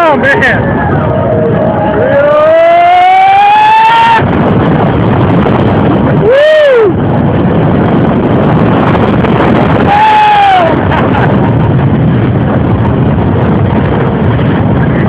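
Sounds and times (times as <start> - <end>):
roller coaster train on track: 0.0 - 15.0
wind rushing: 0.0 - 15.0
person whooping: 1.8 - 4.3, 6.2 - 7.0, 9.8 - 10.8
person screaming: 9.8 - 10.8.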